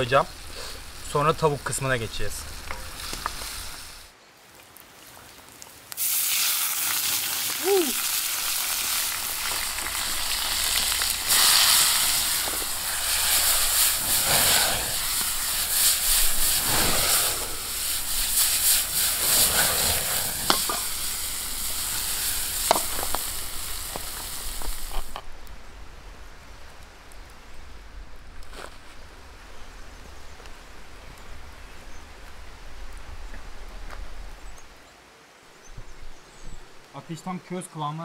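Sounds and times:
noodles sizzling in hot oil: 6.0 - 25.2.

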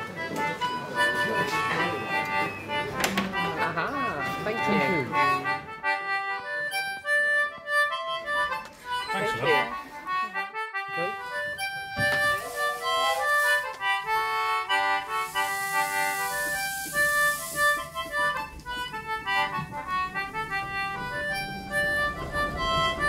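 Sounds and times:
reedy harmonica-like melody: 0.0 - 23.0
high hiss: 15.0 - 18.4.

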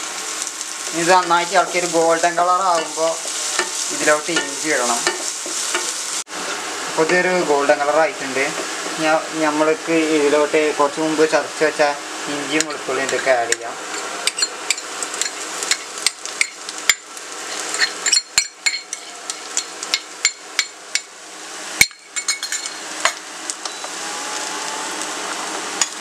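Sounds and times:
onions sizzling in a pan: 0.0 - 26.0
spoon tapping and scraping a pan: 2.7 - 6.0, 13.1 - 21.1.

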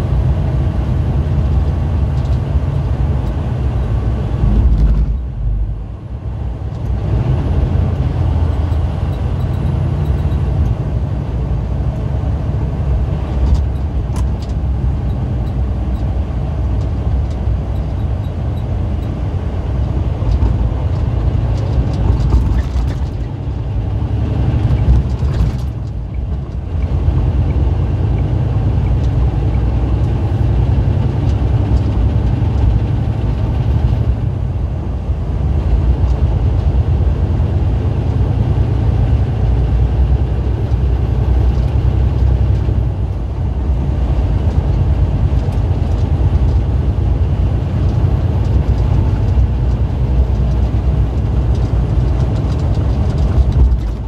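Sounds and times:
engine and road noise rumble: 0.0 - 54.0.

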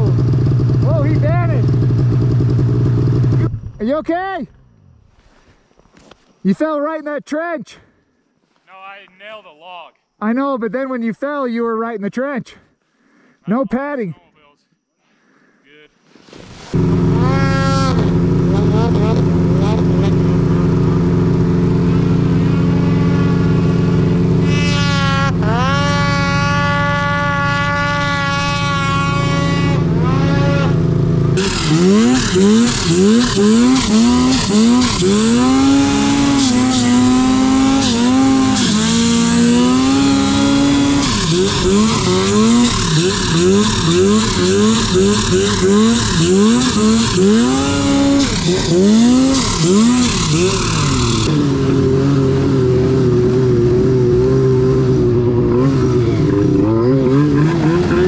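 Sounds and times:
snowmobile engine revving: 0.0 - 3.6, 16.3 - 58.0.

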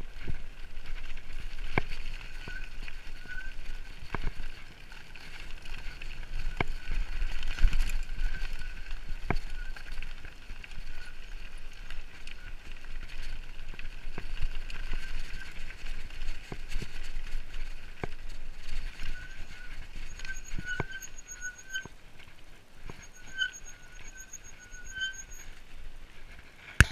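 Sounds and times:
bike tyres on gravel: 0.0 - 26.9
wind rumble on microphone: 0.0 - 26.9
bike knocks and rattles: 26.6 - 26.9.

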